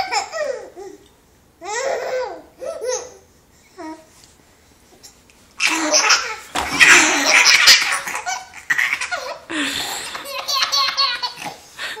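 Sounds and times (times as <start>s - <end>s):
baby laughing: 0.0s - 0.8s, 5.6s - 12.0s.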